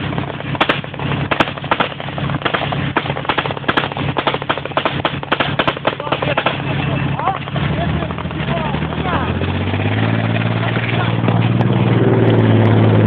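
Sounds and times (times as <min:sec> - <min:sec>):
vehicle engine droning: 0:00.0 - 0:13.0
gunfire cracking: 0:00.2 - 0:09.3.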